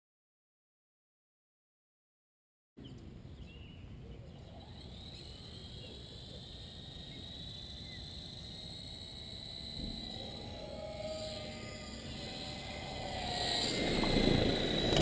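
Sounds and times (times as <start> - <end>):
bird-like chirps: 2.8 - 9.0
high-pitched whine: 4.2 - 15.0
wind buffeting microphone: 12.0 - 15.0.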